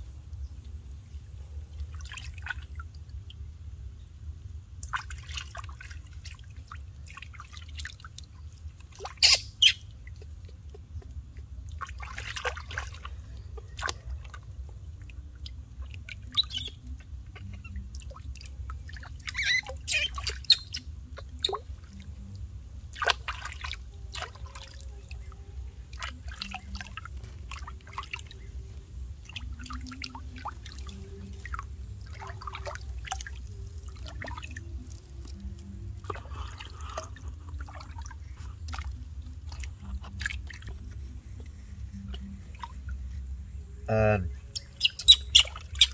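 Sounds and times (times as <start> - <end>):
hands splashing water: 11.0 - 16.6, 22.9 - 24.8.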